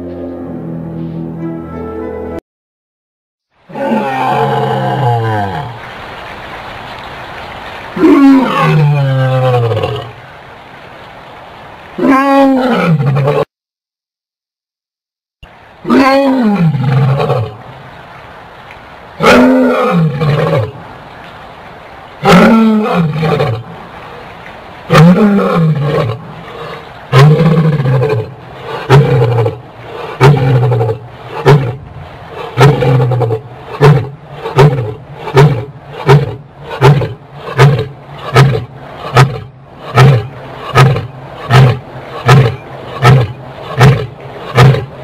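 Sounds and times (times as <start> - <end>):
animal roaring: 3.7 - 5.8, 8.0 - 10.2, 12.0 - 13.5, 15.8 - 17.6, 19.2 - 20.8, 22.2 - 23.7, 24.9 - 45.0.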